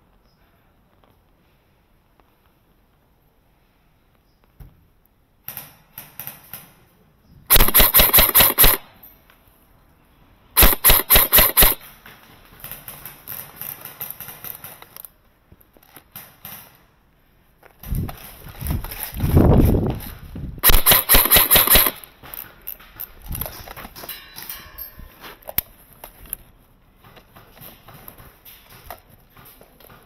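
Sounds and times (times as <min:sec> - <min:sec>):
airsoft rifle firing: 0:07.5 - 0:09.0, 0:10.6 - 0:11.9, 0:20.6 - 0:22.1.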